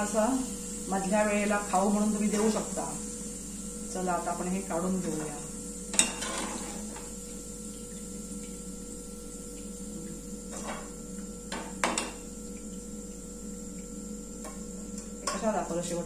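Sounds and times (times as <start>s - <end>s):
steady hum: 0.0s - 16.0s
metal utensils clinking: 6.0s - 6.8s.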